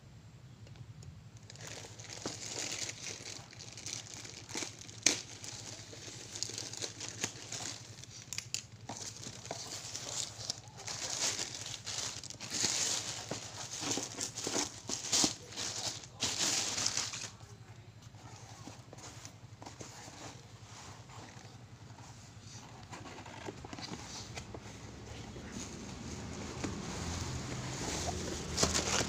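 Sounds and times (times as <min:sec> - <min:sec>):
plastic bag crinkling: 0:01.4 - 0:17.6, 0:27.0 - 0:29.0
cardboard box sliding: 0:18.9 - 0:29.0.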